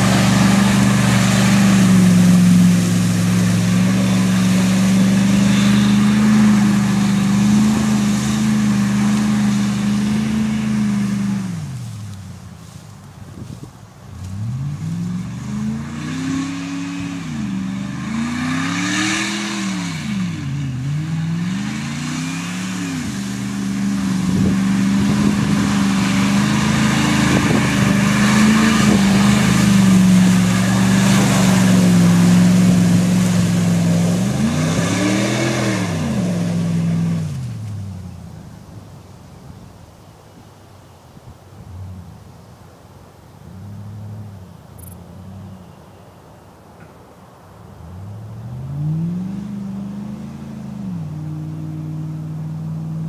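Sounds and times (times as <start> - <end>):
pickup engine revving: 0.0 - 12.4, 14.1 - 38.1, 47.7 - 53.0
wheels spinning in mud: 0.0 - 38.7.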